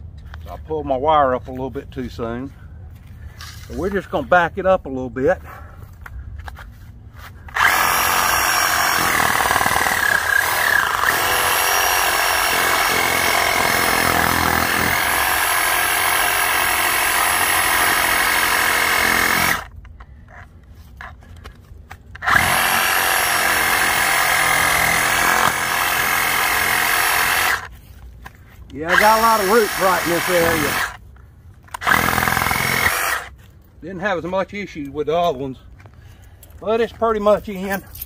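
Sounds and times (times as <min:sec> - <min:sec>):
power tool whining: 0:07.5 - 0:19.7, 0:22.2 - 0:27.7, 0:28.9 - 0:31.0, 0:31.7 - 0:33.3.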